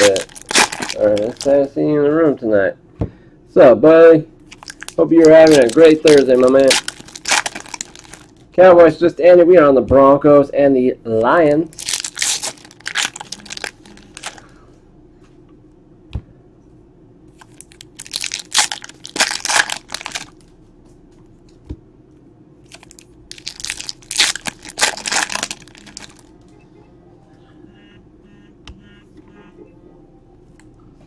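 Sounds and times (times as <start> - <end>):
foil wrappers tearing and crinkling: 0.0 - 1.7, 4.5 - 8.4, 11.7 - 14.4, 17.4 - 20.4, 22.7 - 26.3.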